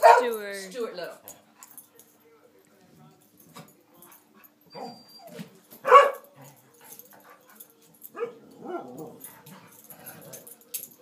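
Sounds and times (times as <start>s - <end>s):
dog barking: 0.0s - 0.4s, 5.8s - 6.3s, 8.2s - 9.0s
dog whimpering: 4.7s - 5.4s
dog whining: 4.7s - 5.4s.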